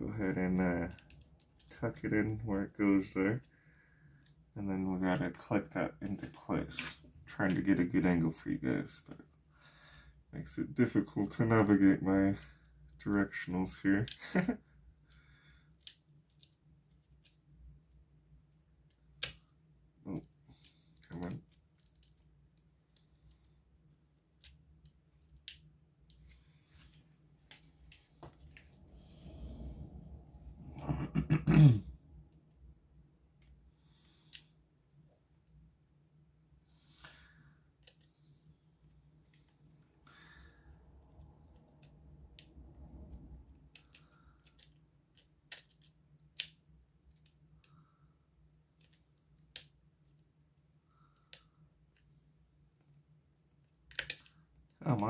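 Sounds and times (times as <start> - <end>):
faint low hum: 0.0 - 55.0.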